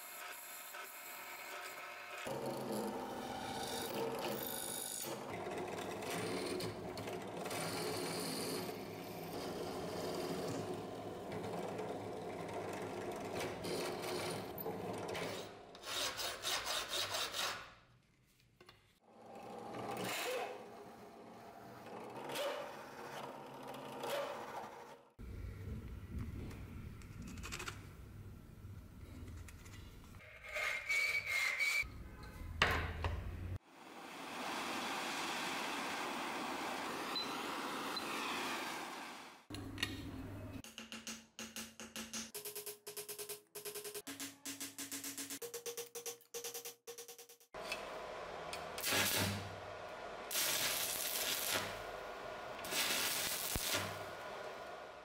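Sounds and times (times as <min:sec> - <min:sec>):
hacksaw cutting steel rod: 0:15.2 - 0:17.7
saw blade squealing: 0:30.3 - 0:31.9.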